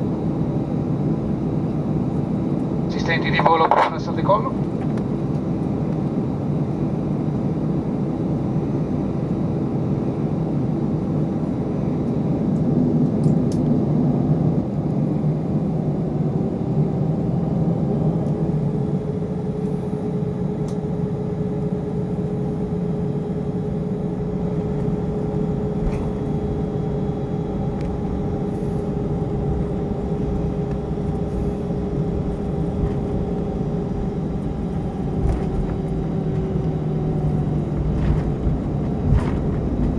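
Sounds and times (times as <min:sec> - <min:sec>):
jet engines rumbling: 0:00.0 - 0:39.9
cabin hum: 0:18.2 - 0:39.9.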